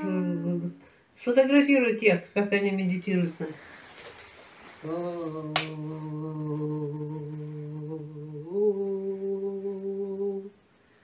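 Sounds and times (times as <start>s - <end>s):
person humming a chant: 4.8s - 10.6s.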